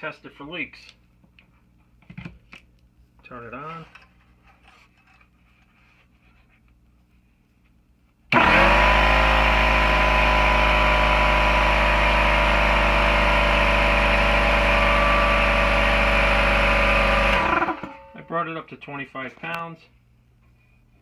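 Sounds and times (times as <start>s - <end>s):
air compressor running: 8.3s - 18.1s.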